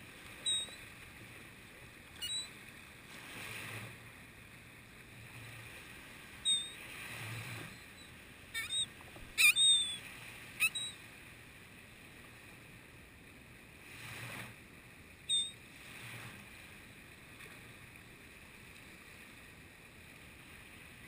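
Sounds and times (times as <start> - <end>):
small surf washing: 0.0 - 21.0
gulls calling: 0.4 - 0.8, 2.2 - 2.6, 6.4 - 11.0, 15.3 - 15.6.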